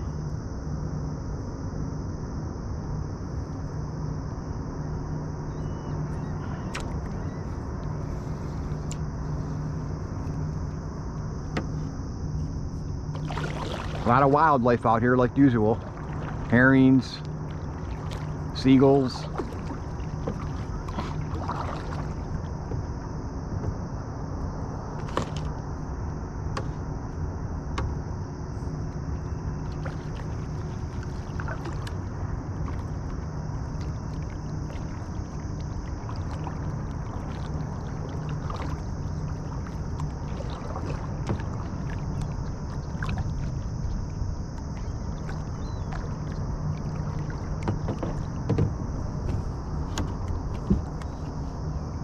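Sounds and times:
water rumbling against boat: 2.1s - 52.0s
light knocks on hull: 11.4s - 12.0s, 19.2s - 23.9s, 25.0s - 25.6s, 26.5s - 26.8s, 27.7s - 28.0s, 29.7s - 43.6s, 44.6s - 51.4s.

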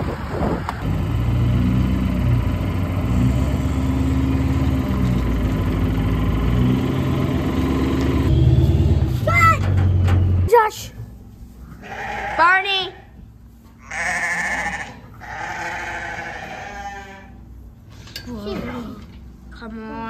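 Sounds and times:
truck engine humming: 0.0s - 11.2s.

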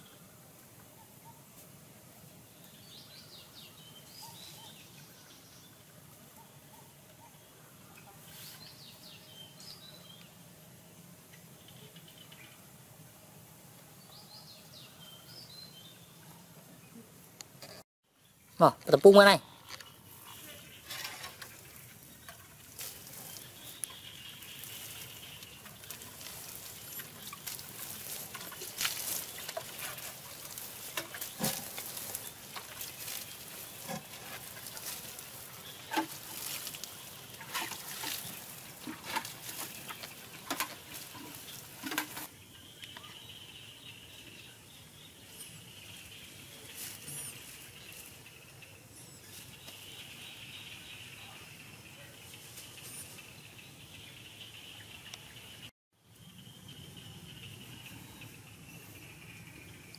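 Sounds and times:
bare feet on grass: 18.6s - 42.3s, 46.1s - 48.2s
water sprinkling on grass: 20.1s - 42.3s.

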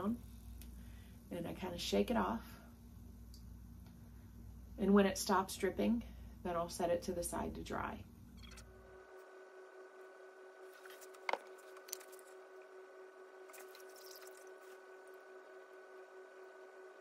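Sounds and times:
steady faint hum: 0.0s - 17.0s
handling noises: 10.7s - 12.4s
soft glaze drips: 13.5s - 14.8s.

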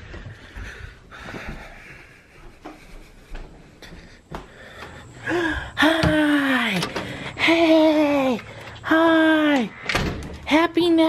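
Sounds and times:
footsteps: 0.0s - 7.2s.

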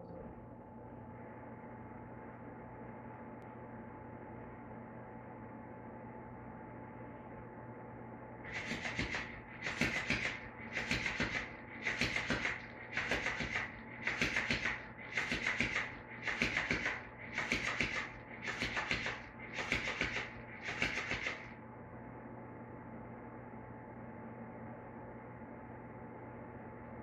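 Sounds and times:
toy fish flapping on tile floor: 8.5s - 21.5s.

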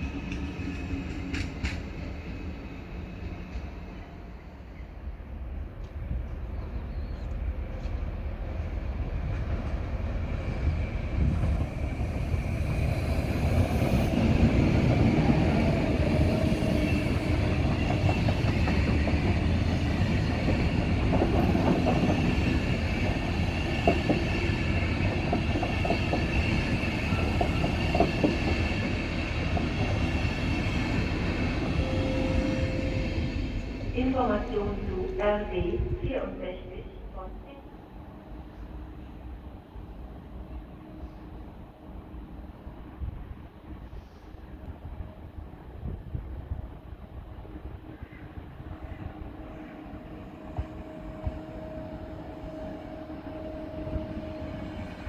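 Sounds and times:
train rumbling past: 0.0s - 55.0s.

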